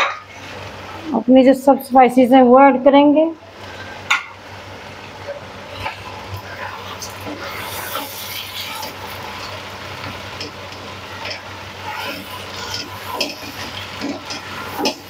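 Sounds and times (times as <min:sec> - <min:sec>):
food sizzling in hot oil: 0:03.5 - 0:15.0
spatula scraping a pan: 0:05.7 - 0:09.2, 0:11.1 - 0:15.0.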